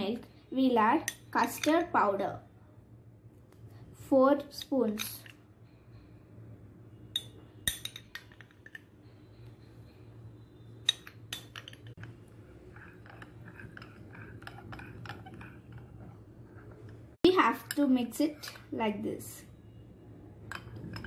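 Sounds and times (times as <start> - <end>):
metal spoon clinking cup: 7.1 - 8.9, 10.8 - 16.1, 20.4 - 21.0
stirring scrapes: 11.9 - 17.2.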